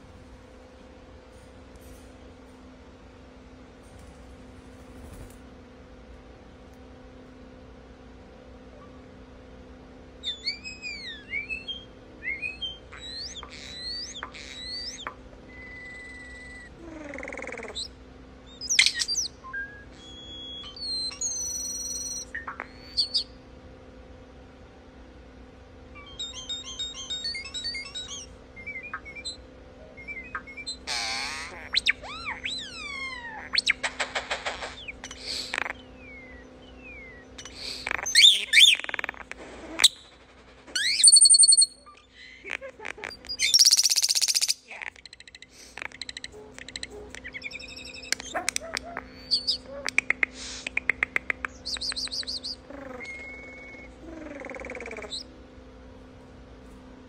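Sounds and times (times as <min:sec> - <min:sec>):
starling singing: 0:10.2 - 0:23.4, 0:26.0 - 0:55.3.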